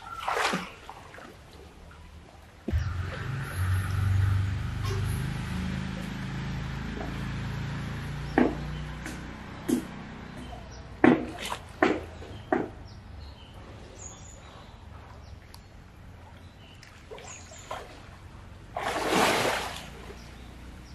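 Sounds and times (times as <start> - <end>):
water splashing: 0.0 - 12.8, 16.1 - 20.9
small birds chirping: 4.8 - 18.4, 19.8 - 20.9.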